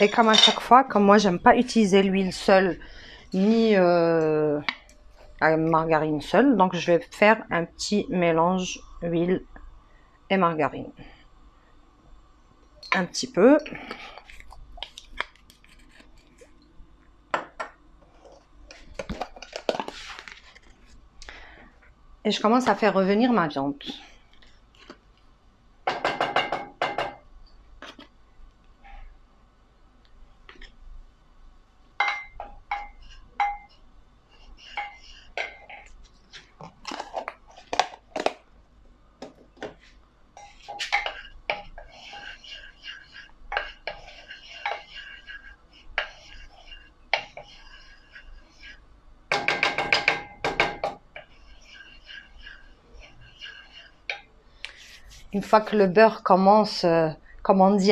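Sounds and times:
wooden spoon knocking in pot: 25.8 - 27.2, 32.0 - 33.7, 49.3 - 51.3.

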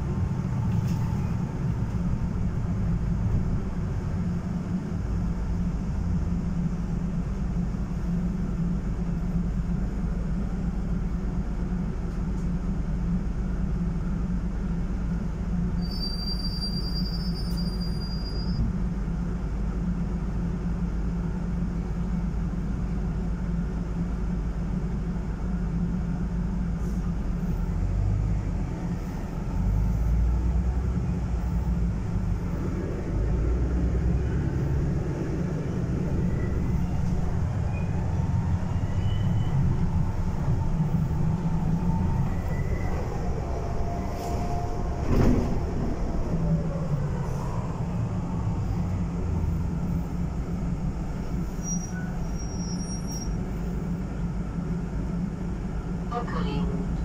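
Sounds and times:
bus engine drone: 0.0 - 57.0
road rumble: 0.0 - 57.0.

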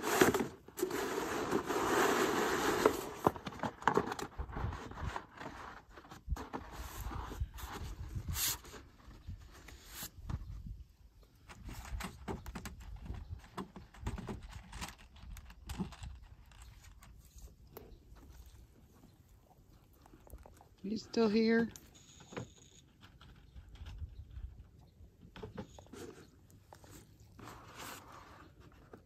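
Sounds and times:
tar paper rustling and scraping: 0.0 - 10.1, 25.9 - 29.0.

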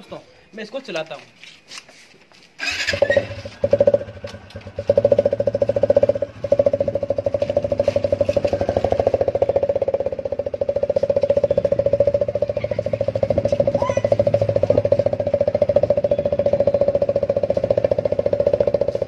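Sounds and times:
motorcycle engine pulsing exhaust: 2.6 - 19.0.

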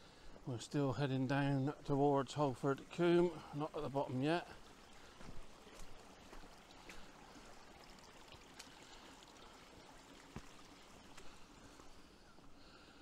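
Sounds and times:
stream running: 0.0 - 13.0.

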